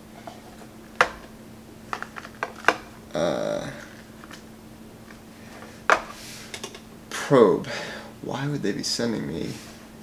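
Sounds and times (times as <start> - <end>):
plastic packaging clicks and taps: 1.9 - 2.9
man's voice murmuring: 3.1 - 4.0.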